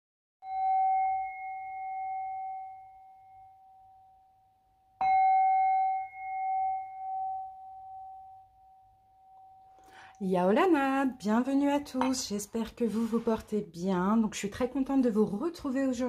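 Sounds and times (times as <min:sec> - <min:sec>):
metal bell-like tone ringing: 0:00.4 - 0:11.5.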